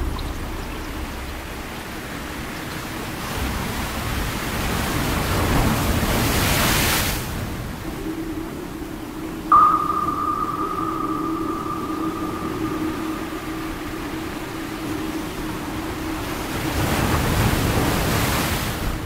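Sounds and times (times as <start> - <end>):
low steady hum: 7.6 - 18.2
higher steady tone: 7.8 - 18.0.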